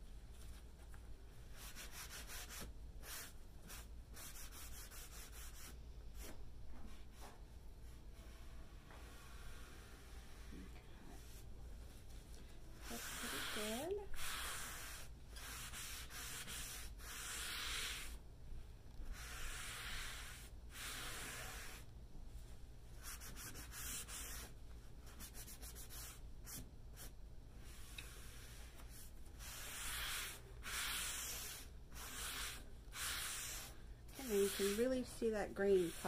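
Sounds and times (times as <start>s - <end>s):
rag rubbing on wood: 29.6s - 36.0s.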